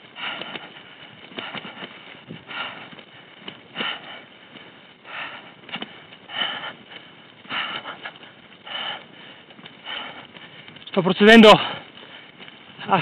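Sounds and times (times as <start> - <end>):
heavy laboured breathing: 0.0 - 13.0.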